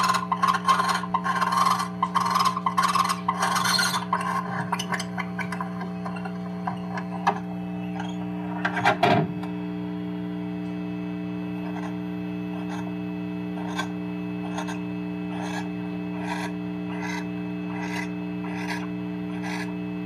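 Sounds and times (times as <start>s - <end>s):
steady low hum: 0.0s - 20.0s
owl rasping hiss calls: 15.3s - 18.8s.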